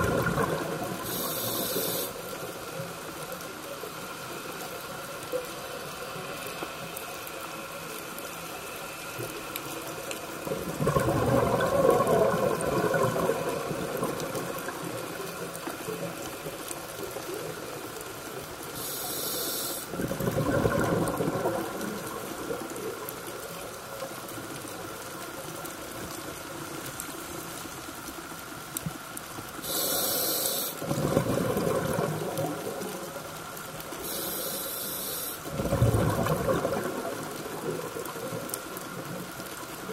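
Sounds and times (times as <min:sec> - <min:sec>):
bursts of exhaled bubbles: 0:00.0 - 0:01.3, 0:10.5 - 0:15.1, 0:19.9 - 0:22.6, 0:30.8 - 0:32.9, 0:35.5 - 0:38.4
regulator inhalation hiss: 0:01.0 - 0:02.4, 0:18.8 - 0:19.9, 0:29.6 - 0:30.8, 0:34.0 - 0:35.5.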